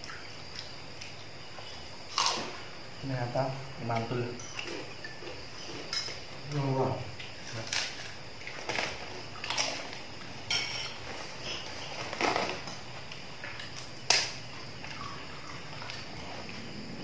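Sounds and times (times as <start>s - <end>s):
crickets chirring: 0.0s - 17.0s
spoons clinking on plates: 5.9s - 6.2s, 10.4s - 11.6s.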